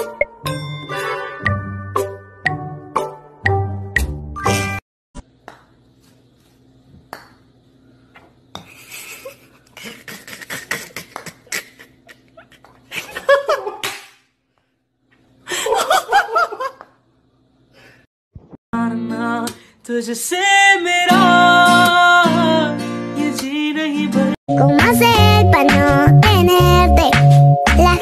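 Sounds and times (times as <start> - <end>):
person laughing: 8.7 - 13.9.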